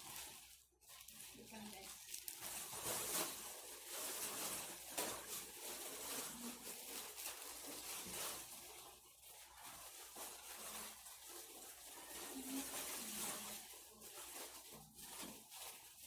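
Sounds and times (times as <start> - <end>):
plastic sheet rustling and crinkling: 0.0 - 16.0.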